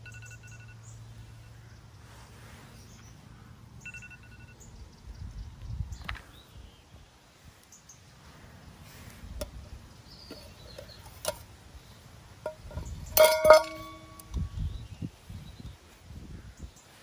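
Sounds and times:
metal pot and lid clinking: 0:12.4 - 0:14.5.

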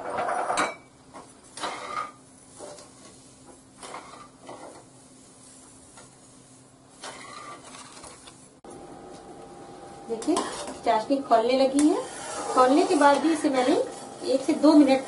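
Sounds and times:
ladle stirring and scraping pan: 0:00.0 - 0:08.2, 0:10.1 - 0:15.0
faint steady hum: 0:08.0 - 0:15.0.

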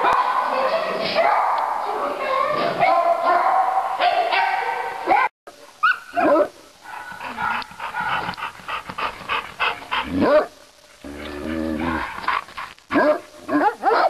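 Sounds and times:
dogs barking: 0:02.7 - 0:10.6, 0:11.8 - 0:14.0
dog yelps: 0:05.8 - 0:07.6.

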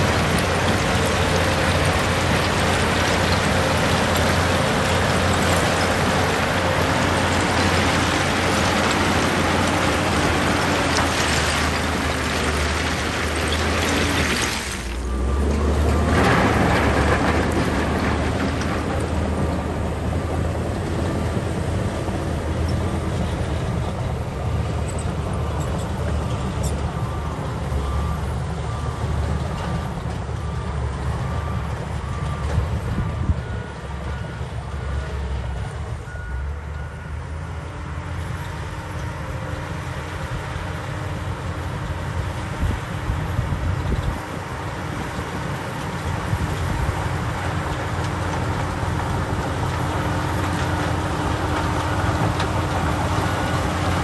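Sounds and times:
diesel engine rumble: 0:00.0 - 0:54.0
reversing alarm beeping: 0:26.9 - 0:37.9.

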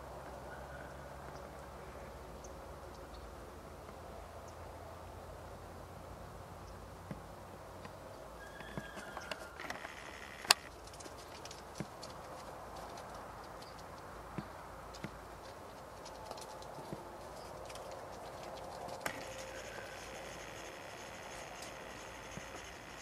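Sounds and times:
deer moving on straw: 0:08.4 - 0:23.0.

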